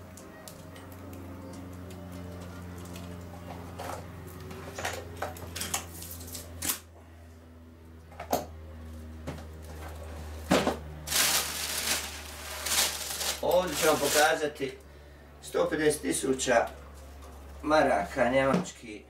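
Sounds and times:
paper rustling: 0:11.1 - 0:14.4.

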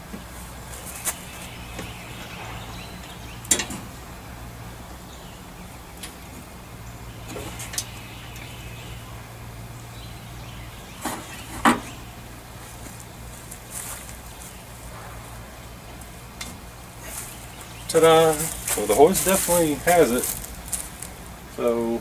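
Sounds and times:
steady low hum: 0:00.0 - 0:22.0
hoist rigging knocks and clanks: 0:01.8 - 0:04.0.

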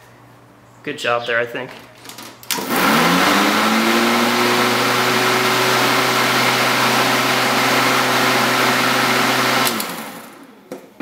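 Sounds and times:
electric lawn mower motor whirring: 0:02.5 - 0:10.5.

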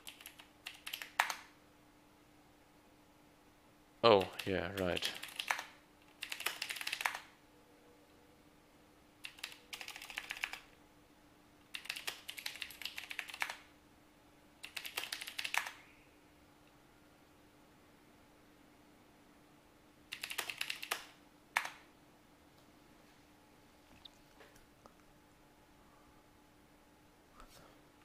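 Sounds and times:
typing on keyboard: 0:00.0 - 0:01.5, 0:04.2 - 0:07.3, 0:09.2 - 0:10.7, 0:11.7 - 0:13.7, 0:14.6 - 0:15.8, 0:20.1 - 0:21.8
faint steady hum: 0:00.0 - 0:28.0.

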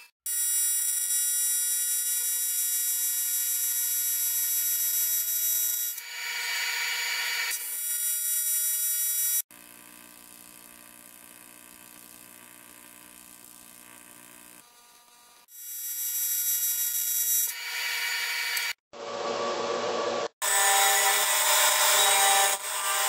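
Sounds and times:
welding arc buzzing: 0:04.9 - 0:18.8
quiet low arc buzz: 0:09.6 - 0:15.4.

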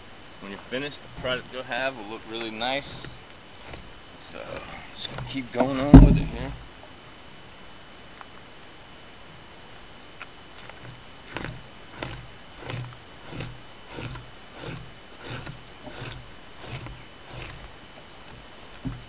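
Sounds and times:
low thud: 0:05.6 - 0:06.6
blade scraping hide: 0:10.6 - 0:19.0.

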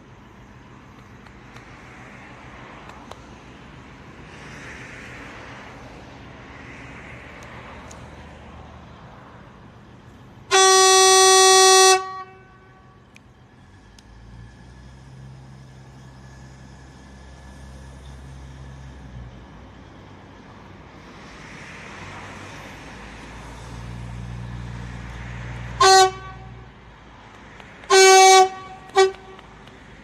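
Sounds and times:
train running: 0:00.0 - 0:30.0
train horn blast: 0:10.5 - 0:13.0, 0:25.7 - 0:26.7, 0:27.9 - 0:29.5.

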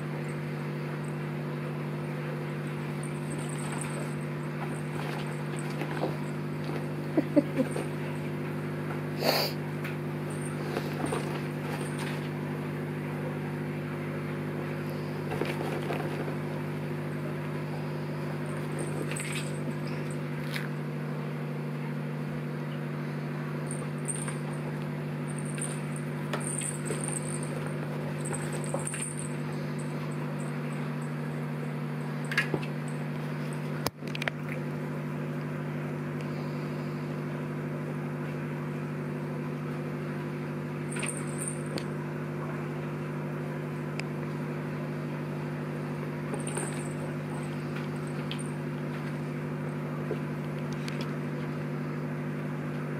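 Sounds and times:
low electrical hum: 0:00.0 - 0:52.9
small bells jingling: 0:03.0 - 0:06.4, 0:23.7 - 0:24.6, 0:25.3 - 0:31.1, 0:40.9 - 0:41.8.

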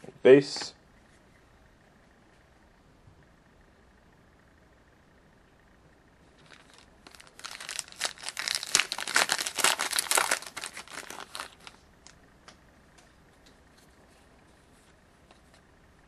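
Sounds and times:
foil wrapper crinkling and tearing: 0:06.4 - 0:11.8.

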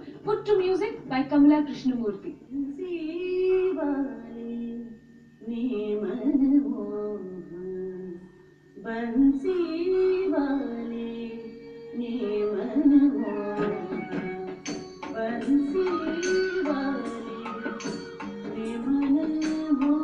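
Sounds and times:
person singing melodic vocal: 0:02.4 - 0:20.0
sharp percussion strokes: 0:14.0 - 0:20.0.

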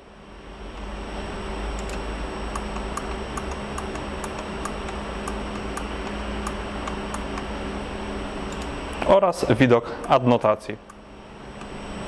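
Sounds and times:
low electrical hum: 0:00.0 - 0:12.0
computer control clicks: 0:01.8 - 0:07.5, 0:08.5 - 0:09.1.

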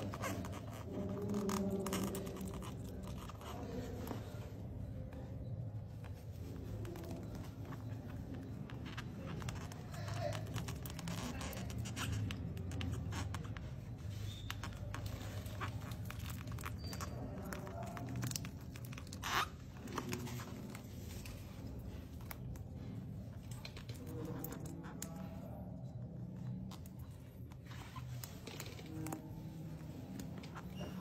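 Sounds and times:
spiky husk crackling and splitting: 0:14.9 - 0:22.6.

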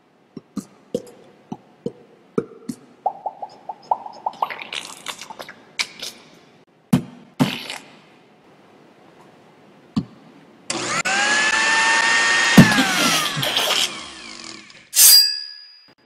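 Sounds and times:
cartoon pops and plops: 0:00.4 - 0:05.6
blender motor whining: 0:10.7 - 0:14.9.

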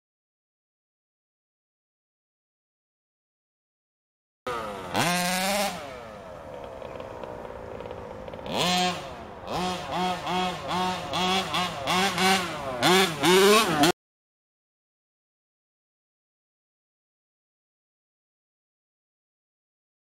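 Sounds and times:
two-stroke engine revving: 0:04.5 - 0:14.0.

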